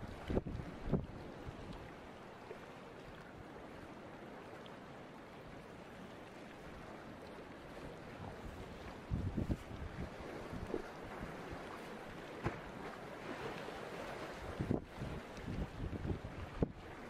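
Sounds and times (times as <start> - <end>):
choppy sea water washing: 0.0 - 17.0.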